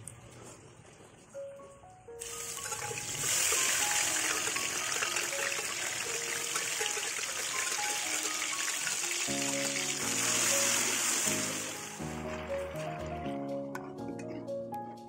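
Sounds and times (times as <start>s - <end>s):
paste sizzling in hot oil: 2.2s - 12.0s.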